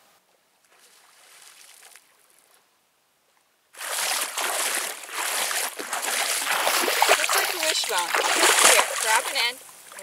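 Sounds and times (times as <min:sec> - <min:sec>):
feet splashing in shallow water: 0:00.8 - 0:02.5, 0:03.8 - 0:10.0.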